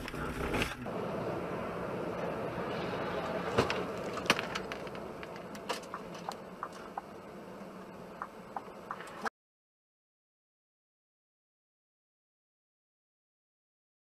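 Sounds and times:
car road and tyre noise: 0.0s - 9.3s.

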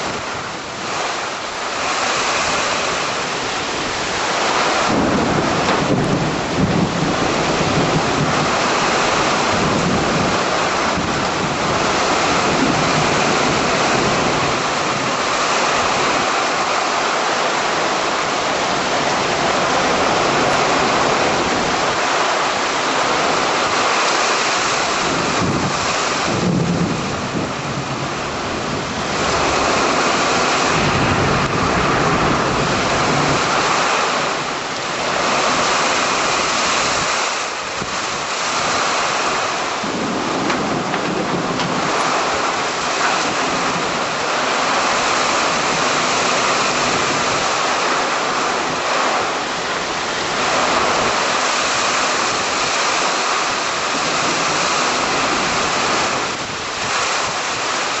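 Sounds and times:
low thunder rumble: 0.0s - 16.6s, 24.6s - 37.1s, 37.7s - 53.0s
heavy rain pouring: 0.0s - 58.0s
strong wind: 0.0s - 58.0s.

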